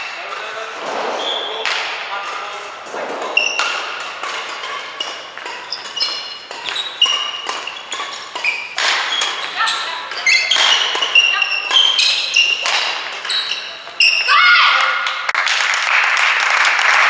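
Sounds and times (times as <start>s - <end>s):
rackets hitting shuttlecock: 0.1s - 14.3s
shoes squeaking on court floor: 1.2s - 14.6s.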